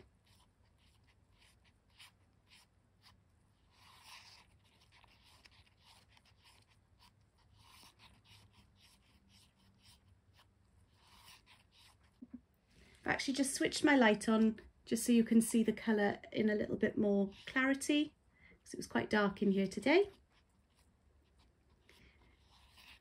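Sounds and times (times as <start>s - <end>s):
wooden stick scraping paper cup: 0.0s - 12.4s, 20.0s - 23.0s.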